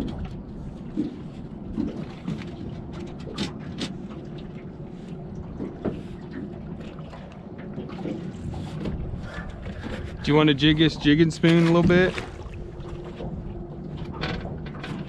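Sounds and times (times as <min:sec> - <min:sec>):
water slapping against boat hull: 0:00.0 - 0:15.0
wind on microphone: 0:08.0 - 0:11.2.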